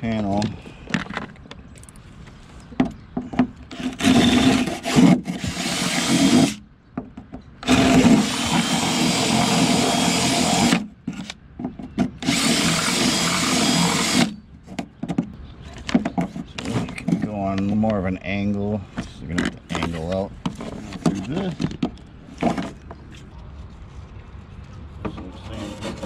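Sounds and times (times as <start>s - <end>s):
power drill boring into fiberglass: 3.7s - 6.6s, 7.6s - 10.8s, 12.2s - 14.3s.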